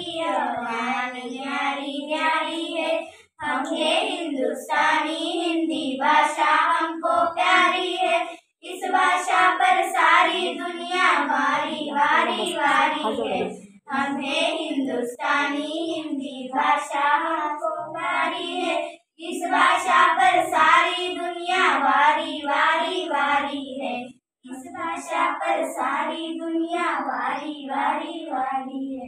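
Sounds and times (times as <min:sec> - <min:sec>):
girls singing in unison: 0:00.0 - 0:29.0.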